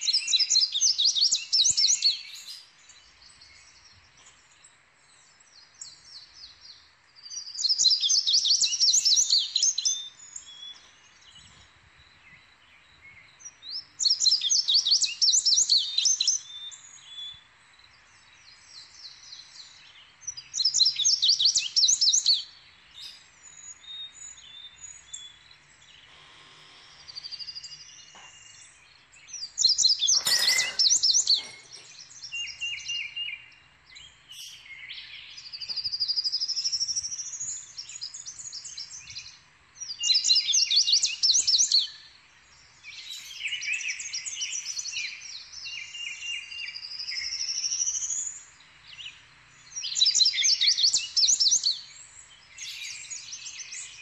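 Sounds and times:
faint bird sounds: 0:00.0 - 0:54.0.

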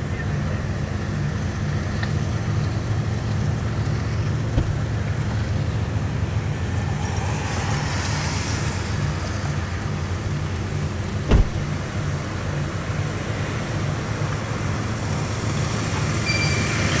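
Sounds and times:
locomotive engines rumbling: 0:00.0 - 0:17.0.

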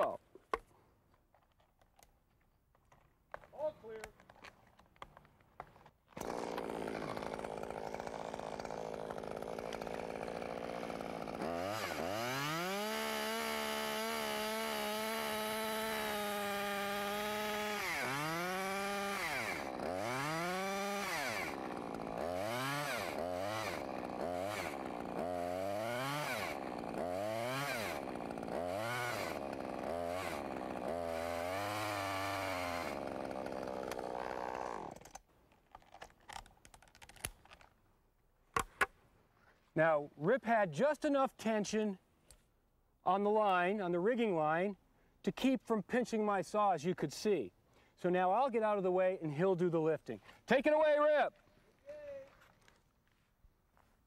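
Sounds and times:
chainsaw cutting wood: 0:06.1 - 0:35.3.

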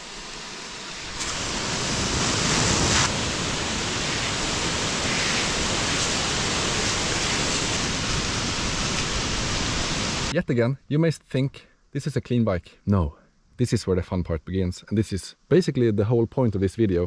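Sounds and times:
hose nozzle spraying water: 0:00.0 - 0:10.3.

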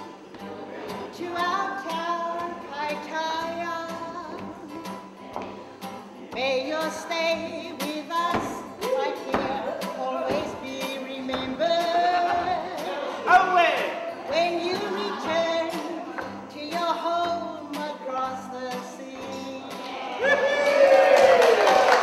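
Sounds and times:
strummed acoustic guitar: 0:00.0 - 0:20.2
woman singing: 0:01.1 - 0:04.8, 0:06.3 - 0:12.9, 0:14.3 - 0:20.1.

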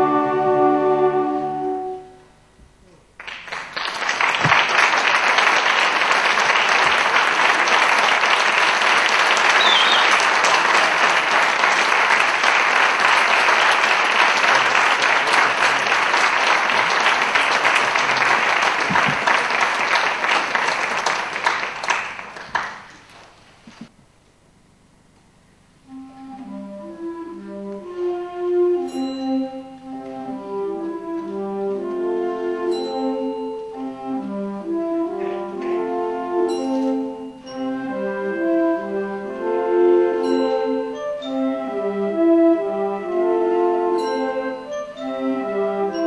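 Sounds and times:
audience applauding: 0:03.2 - 0:23.9
wind band held chord: 0:05.7 - 0:21.7.

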